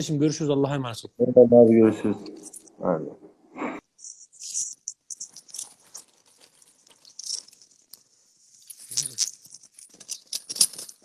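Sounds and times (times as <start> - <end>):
clicks of objects being handled: 4.0 - 11.0.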